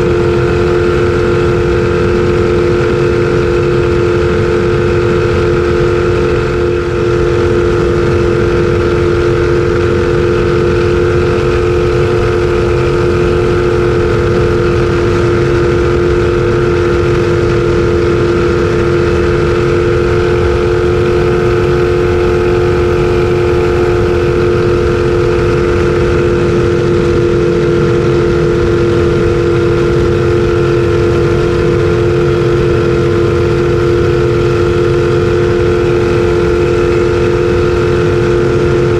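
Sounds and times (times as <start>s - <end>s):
boat engine running hard: 0.0s - 38.9s
steady rush of noise: 0.0s - 38.9s.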